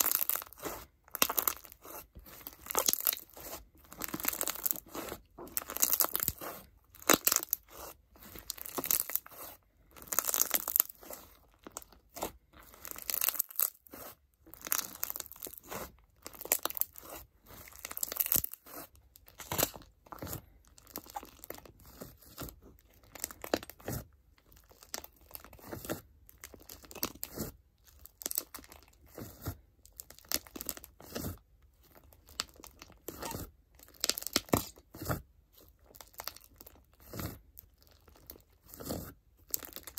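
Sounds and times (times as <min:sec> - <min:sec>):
crunchy slime squishing: 0:00.0 - 0:39.9.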